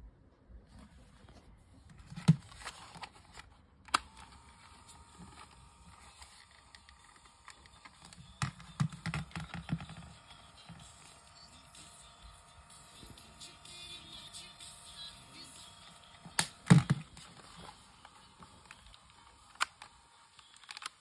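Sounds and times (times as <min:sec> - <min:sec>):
plastic clicks and knocks: 0:07.5 - 0:10.1.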